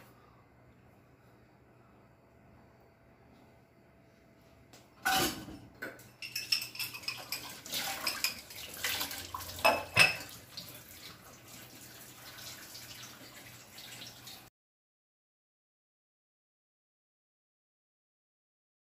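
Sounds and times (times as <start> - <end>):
dishes clattering in a metal sink: 5.0 - 11.4
tap running water: 6.8 - 14.5.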